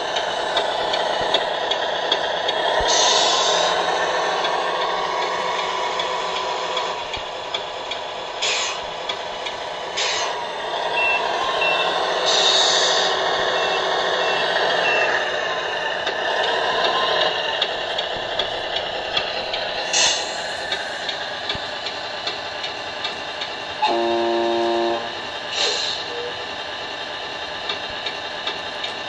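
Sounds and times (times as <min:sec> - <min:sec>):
short hisses: 0:08.4 - 0:08.8, 0:25.5 - 0:26.1
reversing beeps: 0:11.0 - 0:12.0, 0:13.5 - 0:15.2.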